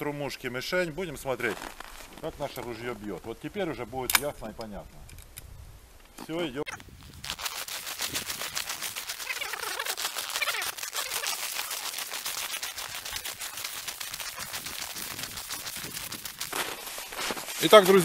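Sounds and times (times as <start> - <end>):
footsteps crunching through snow: 1.2 - 3.0, 6.8 - 18.0.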